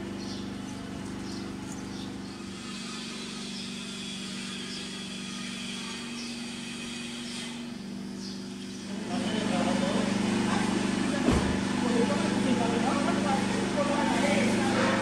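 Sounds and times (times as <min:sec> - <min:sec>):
low engine hum: 0:00.0 - 0:02.4.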